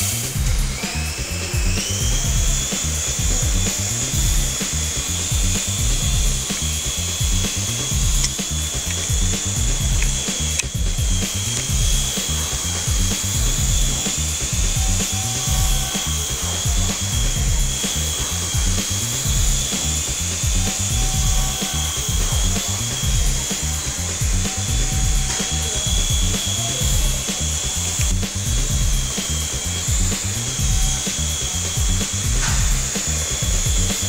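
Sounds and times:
high steady whine: 0:00.0 - 0:34.0
music with pulsing bass beat: 0:00.0 - 0:34.0.

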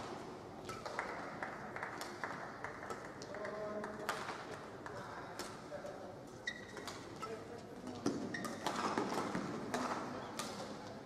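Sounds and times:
shoe squeaks on court: 0:06.4 - 0:07.4
rackets striking shuttlecock: 0:08.1 - 0:10.8.

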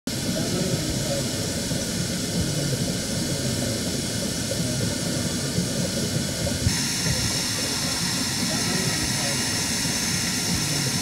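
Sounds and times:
waterfall roaring: 0:06.6 - 0:11.0.

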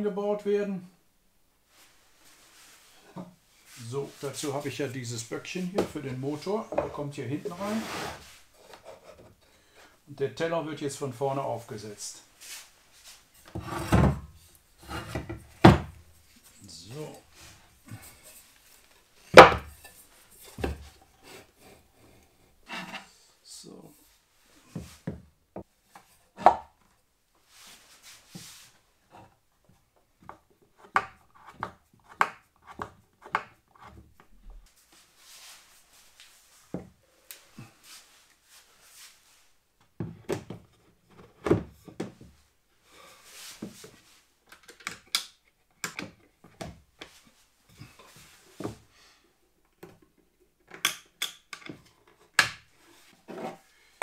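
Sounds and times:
wood and tools knocking: 0:06.7 - 0:07.0, 0:19.3 - 0:21.0, 0:30.2 - 0:34.3.

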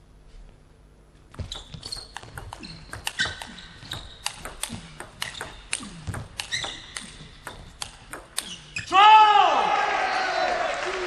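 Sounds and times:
table tennis ball pinging: 0:01.4 - 0:08.8.

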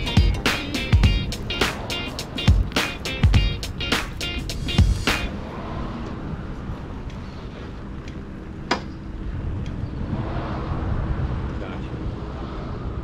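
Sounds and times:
loud music beats: 0:00.0 - 0:05.3
vehicle engine idling: 0:00.0 - 0:09.4.

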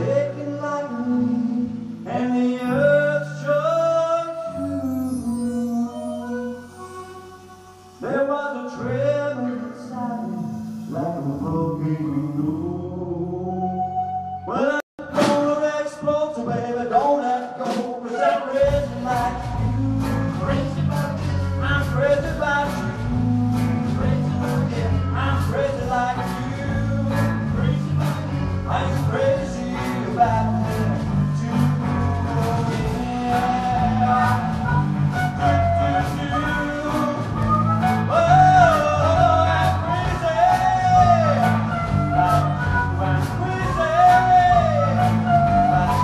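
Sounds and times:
blues band playing: 0:00.0 - 0:46.0
harmonica bending notes: 0:02.4 - 0:08.3, 0:33.0 - 0:46.0
harmonica solo: 0:04.3 - 0:08.2
sharp drum hits: 0:15.1 - 0:15.5.

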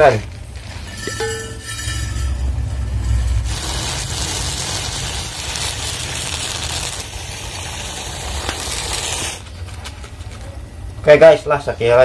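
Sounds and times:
rice grains pouring onto a plate: 0:03.1 - 0:09.4.

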